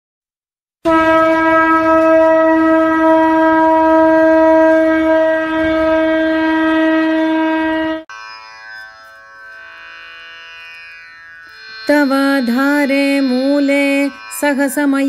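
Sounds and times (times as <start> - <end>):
conch shell blown: 0.8 - 8.2, 11.4 - 15.0
pitched drone: 1.8 - 15.0.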